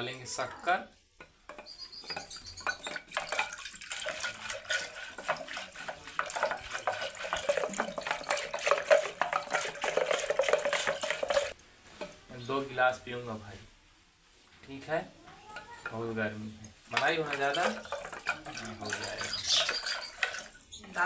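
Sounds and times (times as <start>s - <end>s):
wooden stick clattering against pot: 1.2s - 12.2s, 16.8s - 20.5s
liquid sloshing: 2.0s - 11.6s, 16.8s - 20.9s.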